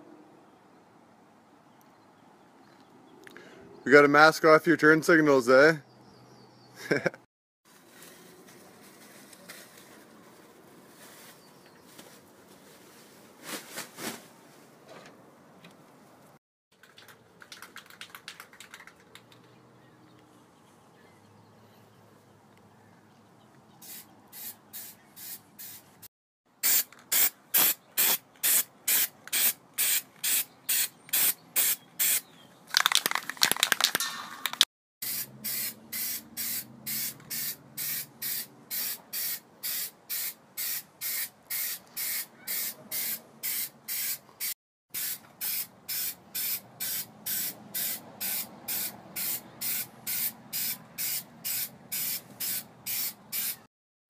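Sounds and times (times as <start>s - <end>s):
aerosol spray can hissing: 26.6s - 32.2s, 35.0s - 53.7s.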